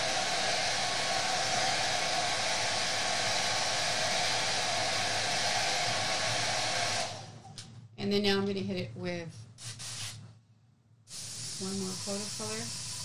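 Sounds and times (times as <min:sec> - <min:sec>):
hair dryer running: 0:00.0 - 0:07.4, 0:11.3 - 0:13.0.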